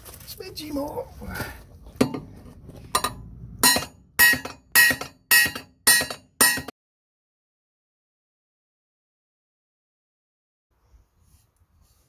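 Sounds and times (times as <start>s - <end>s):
hammer tapping metal blade: 3.0s - 6.7s.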